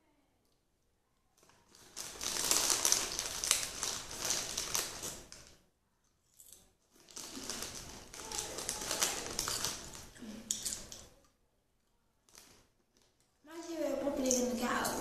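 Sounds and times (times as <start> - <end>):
snack wrapper crinkling: 1.4 - 5.6, 6.3 - 11.1, 12.2 - 13.3.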